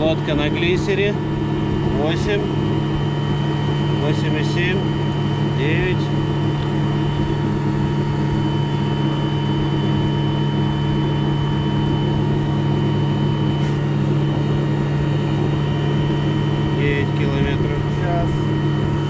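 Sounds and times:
electric motor whine: 0.0 - 19.0.

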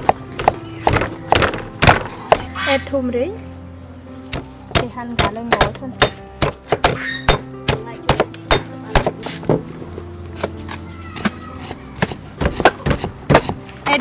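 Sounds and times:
cleaver chopping on wooden board: 0.0 - 2.5, 4.3 - 9.3, 11.2 - 13.6
stone pestle pounding in mortar: 0.0 - 2.5, 4.3 - 9.3, 11.2 - 13.6
background music: 0.0 - 14.0.

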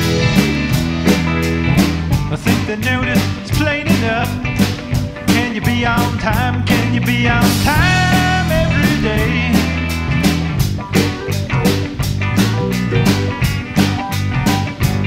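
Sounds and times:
rock music: 0.0 - 15.0.

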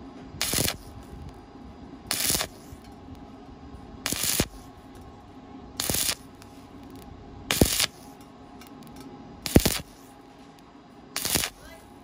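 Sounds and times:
steady low hum: 0.0 - 12.0
welding arc crackling: 0.4 - 1.0, 2.1 - 2.9, 4.0 - 4.7, 5.8 - 8.2, 9.4 - 10.1, 11.2 - 11.8.

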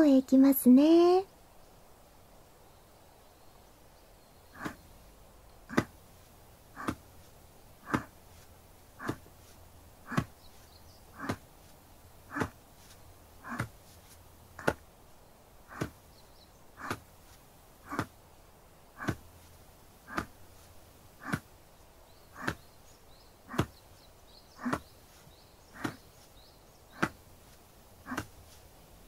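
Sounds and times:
taps on a shoulder: 6.8 - 7.0, 7.8 - 8.2, 13.5 - 13.8, 14.6 - 14.8, 21.2 - 21.5, 22.4 - 22.7, 24.6 - 24.9, 25.8 - 26.1, 27.0 - 27.2, 28.1 - 28.4.

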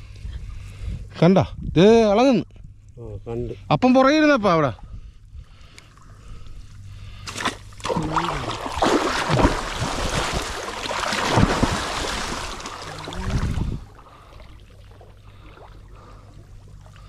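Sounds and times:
person wading through muddy water: 6.8 - 17.0.

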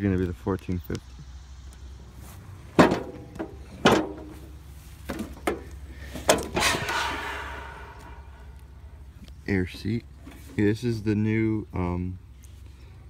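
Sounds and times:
clunks and knocks: 2.7 - 7.1
rattling scrape: 6.1 - 8.5.

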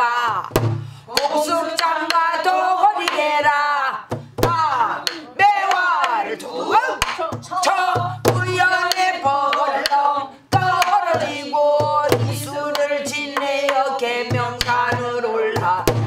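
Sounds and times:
woman singing: 0.0 - 16.0
barrel drum thumps: 0.4 - 0.9, 4.1 - 5.2, 7.3 - 9.0, 14.3 - 16.0
drum stick clacks: 8.8 - 10.0.

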